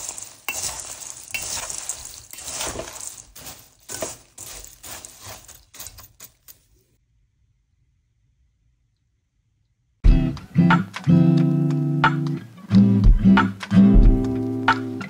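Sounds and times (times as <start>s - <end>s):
spoon scraping metal bowl: 0.0s - 6.6s
spoon tossing crunchy mixture: 0.0s - 6.6s.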